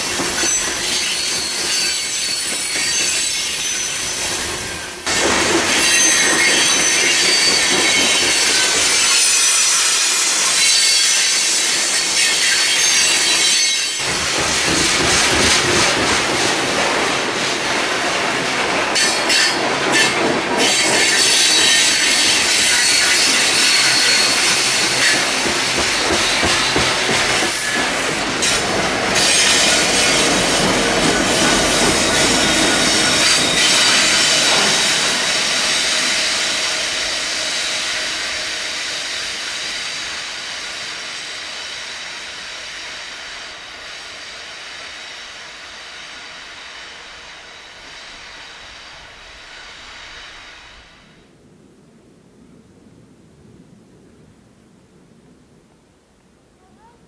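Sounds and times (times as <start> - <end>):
diesel locomotive passing: 0.0 - 55.3
freight train rumbling past: 0.0 - 57.0
high-pitched wheel squeal: 0.4 - 4.5, 20.7 - 25.1.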